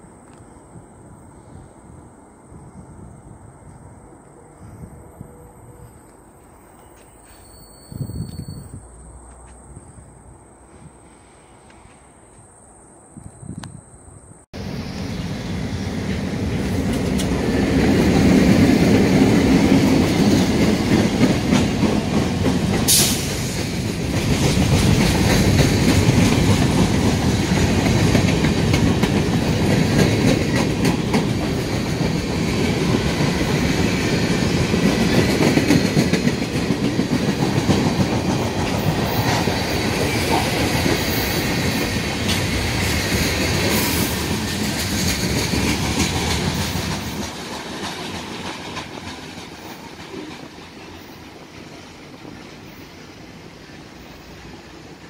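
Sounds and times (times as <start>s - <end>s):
steel wheels rumbling on rail: 14.6s - 55.0s.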